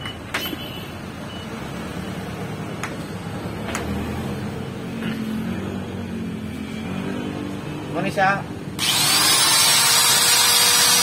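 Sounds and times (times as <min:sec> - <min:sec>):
steady background noise: 0:00.0 - 0:11.0
angle grinder motor humming: 0:08.8 - 0:11.0.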